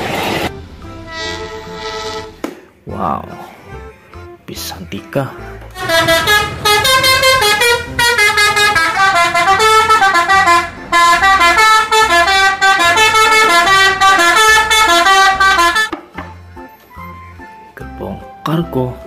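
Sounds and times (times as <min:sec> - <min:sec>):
musical air horn playing a tune: 0:01.0 - 0:02.4, 0:05.8 - 0:15.9.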